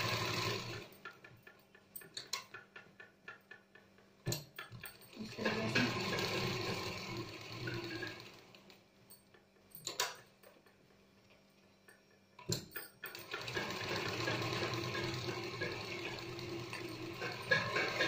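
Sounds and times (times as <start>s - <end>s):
sewing machine stitching: 0.0s - 1.6s, 4.7s - 8.8s, 13.0s - 18.0s.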